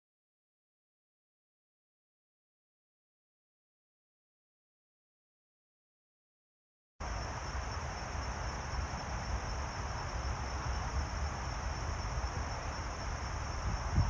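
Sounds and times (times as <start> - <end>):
even hiss: 7.0 - 14.0
wind rumbling on microphone: 7.1 - 14.0.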